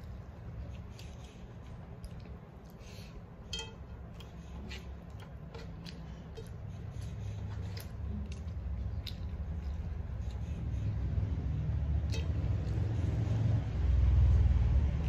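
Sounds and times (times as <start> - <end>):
wet mouth clicks and smacks chewing: 0.0 - 12.9
fingers on steel plate: 3.5 - 7.1.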